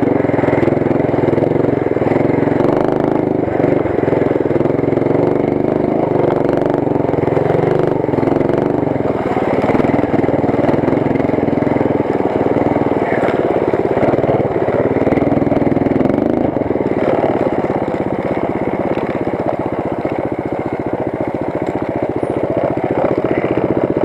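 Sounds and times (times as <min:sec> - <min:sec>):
mini bike engine revving: 0:00.0 - 0:24.0.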